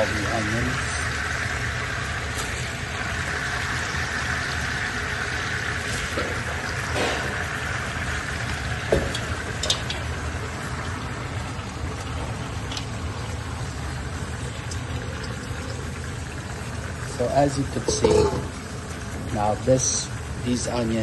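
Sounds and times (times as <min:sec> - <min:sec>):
onions and beef sizzling in pan: 0:00.0 - 0:21.0.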